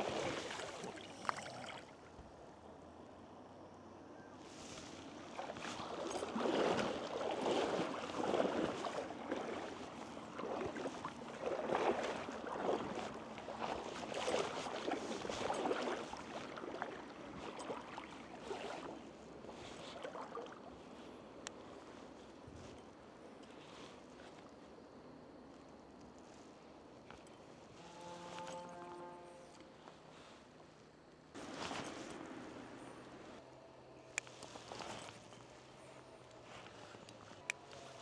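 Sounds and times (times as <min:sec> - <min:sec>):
wading steps through water: 0:00.0 - 0:02.4, 0:04.5 - 0:25.1, 0:31.3 - 0:33.4, 0:34.2 - 0:38.0.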